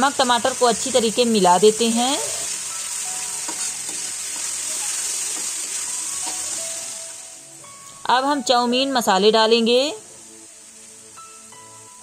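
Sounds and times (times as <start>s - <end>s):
vegetables sizzling in oil: 0.0s - 12.0s
spatula scraping wok: 1.7s - 6.8s.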